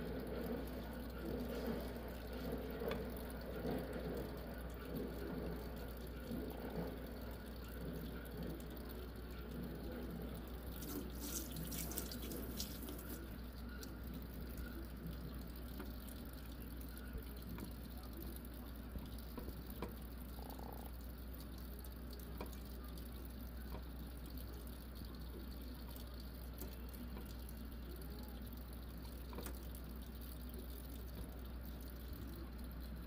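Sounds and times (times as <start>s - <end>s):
water sloshing in plastic tub: 10.7s - 13.3s.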